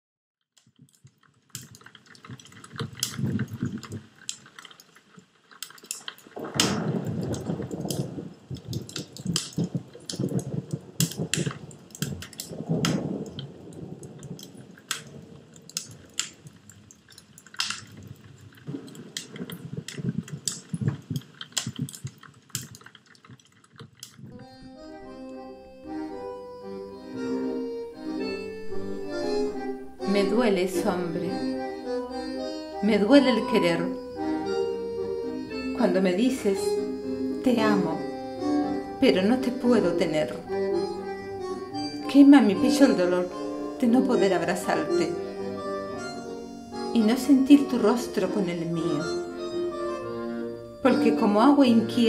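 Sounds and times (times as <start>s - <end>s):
wood fire crackling: 0.6s - 52.0s
low roar of flame: 1.5s - 25.2s.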